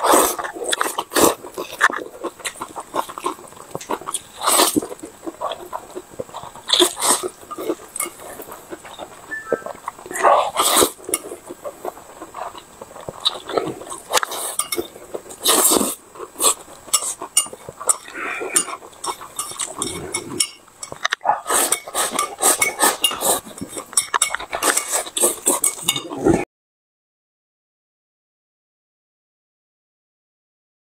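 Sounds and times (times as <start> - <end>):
noodles slurped: 0.0 - 20.5, 21.3 - 26.4
wet chewing and lip smacks: 0.2 - 20.2.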